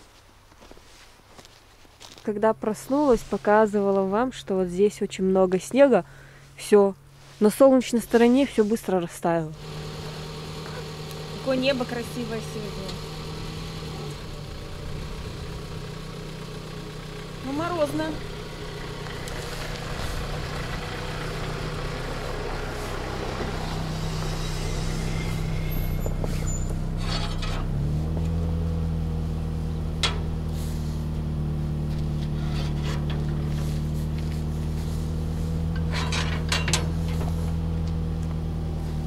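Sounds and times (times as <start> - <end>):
car engine idling: 9.5 - 39.0
metal gate clanking shut: 24.5 - 27.8, 30.0 - 30.3, 32.2 - 33.4, 35.8 - 37.3.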